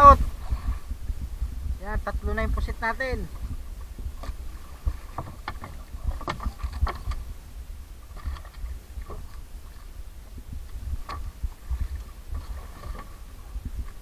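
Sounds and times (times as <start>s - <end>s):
wind and water rumble: 0.0s - 14.0s
knocks in wooden boat hull: 5.1s - 7.2s.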